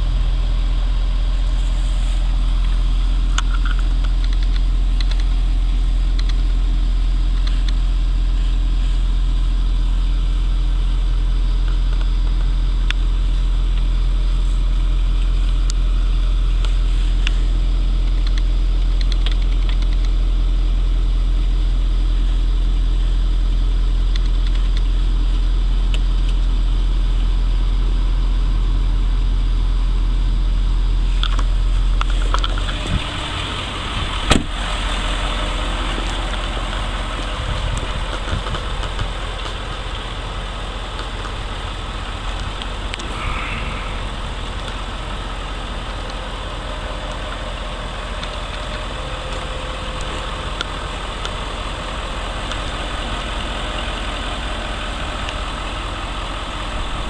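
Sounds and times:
vehicle engine idling: 0.0 - 57.0
sharp click: 6.2 - 6.4.

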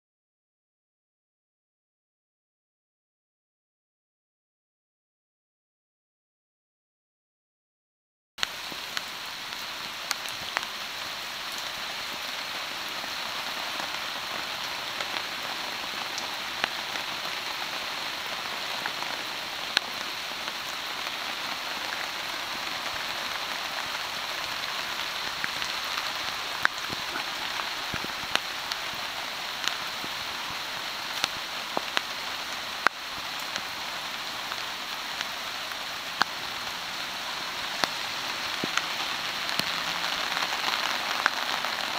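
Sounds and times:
rain on canvas: 8.4 - 41.9.

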